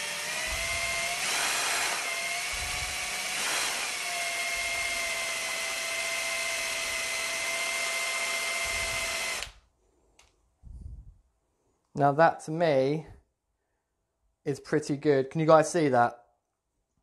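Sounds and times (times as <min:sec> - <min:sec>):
electric drill running: 0:00.0 - 0:09.6.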